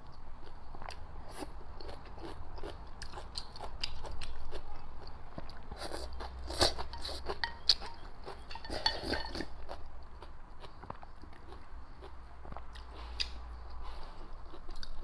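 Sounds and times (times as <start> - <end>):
wet chewing and slurping: 5.4 - 9.8.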